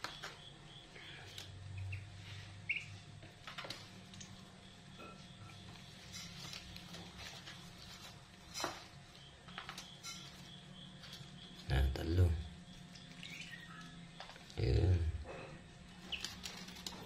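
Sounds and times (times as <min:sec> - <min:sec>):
ducklings peeping: 0:00.0 - 0:03.2, 0:08.7 - 0:15.2, 0:15.9 - 0:17.0.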